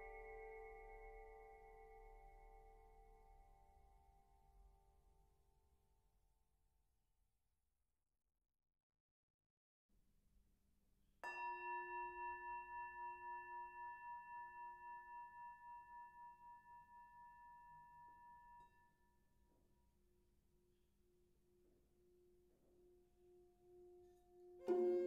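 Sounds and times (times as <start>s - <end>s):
bell-like metal tone ringing: 11.2s - 19.5s, 23.8s - 25.0s.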